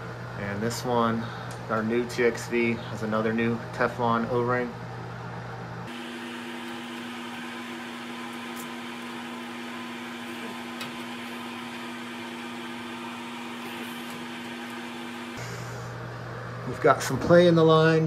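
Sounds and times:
machine hum: 0.0s - 18.0s.

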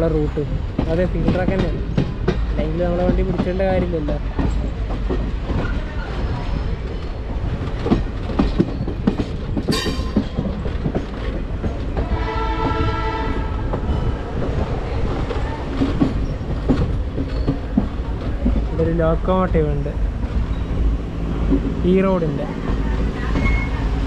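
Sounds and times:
train wheels clacking on rails: 0.0s - 24.0s
train horn: 12.1s - 13.7s.

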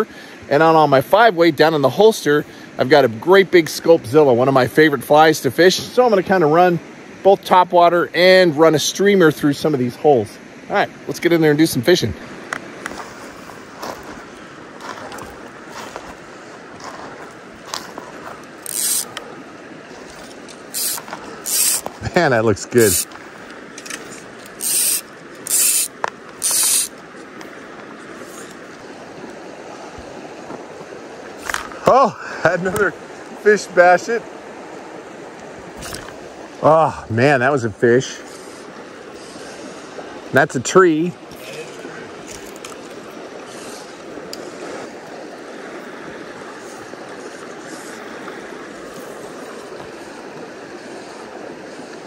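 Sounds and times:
small stream rushing: 0.0s - 52.0s
fly line hissing through rod guides: 17.7s - 19.3s, 19.9s - 22.0s, 22.7s - 23.2s, 24.0s - 27.0s, 41.3s - 44.9s, 46.5s - 52.0s.

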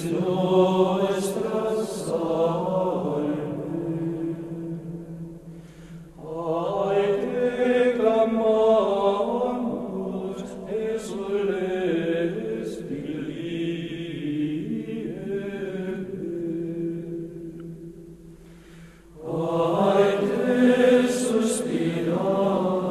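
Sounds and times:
voices chanting: 0.0s - 4.8s, 19.2s - 22.9s.

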